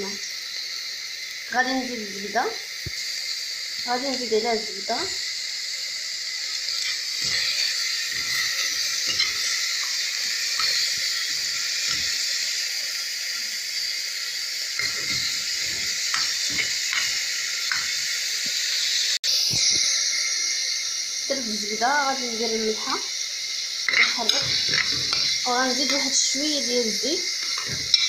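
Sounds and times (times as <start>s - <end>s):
butter and chicken sizzling: 0.0s - 28.0s
metal spoon scraping pot: 6.7s - 12.1s, 23.9s - 26.2s, 27.4s - 28.0s.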